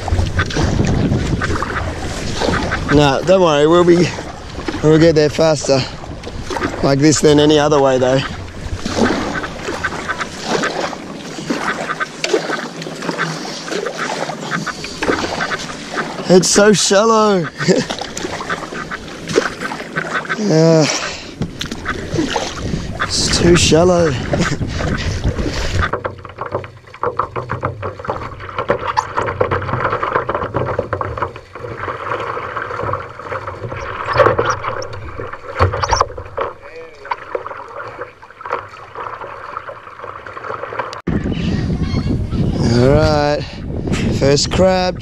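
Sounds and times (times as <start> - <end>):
paddle splashing in water: 0.0 - 41.1
water sloshing and dripping: 0.0 - 41.1
small knocks: 25.8 - 39.1.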